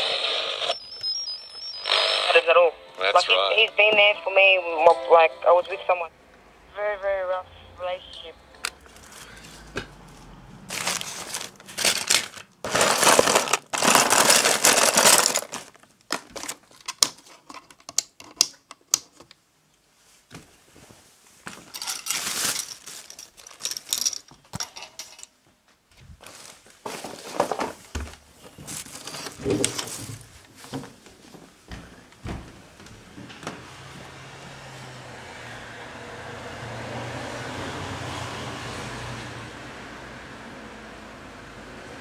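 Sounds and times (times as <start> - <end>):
crinkling and rustling: 8.7 - 33.6.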